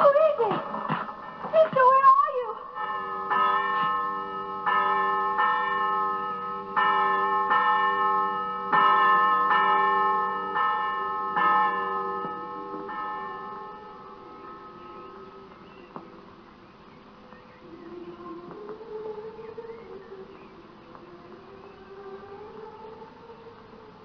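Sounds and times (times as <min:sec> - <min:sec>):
church bell tolling: 0:01.2 - 0:16.4.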